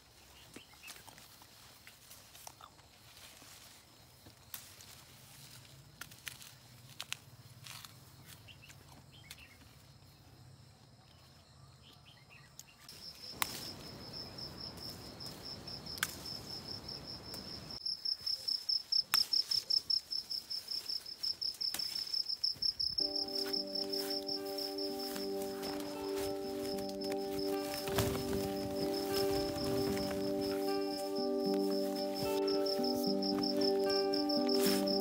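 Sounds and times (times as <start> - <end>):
background music: 23.0 - 35.0.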